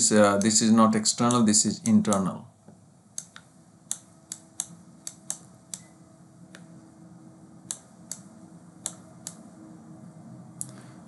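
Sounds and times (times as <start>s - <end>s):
faint steady hum: 0.0s - 11.0s
sharp clicks: 1.2s - 2.3s, 3.2s - 5.9s, 7.7s - 9.4s.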